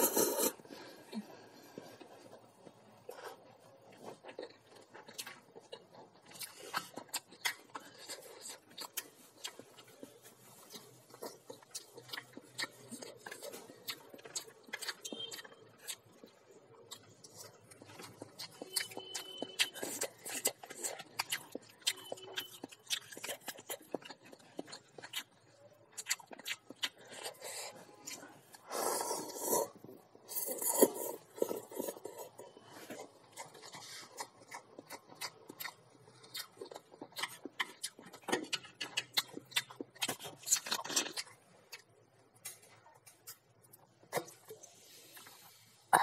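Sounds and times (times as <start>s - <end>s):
slurping noodles: 0.0s - 0.7s, 28.6s - 32.4s
wet chewing: 1.1s - 45.5s.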